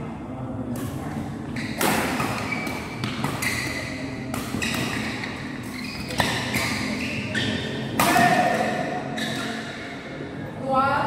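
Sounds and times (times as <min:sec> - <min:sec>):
badminton racket hitting shuttlecock: 0:01.6 - 0:07.2, 0:07.8 - 0:08.8.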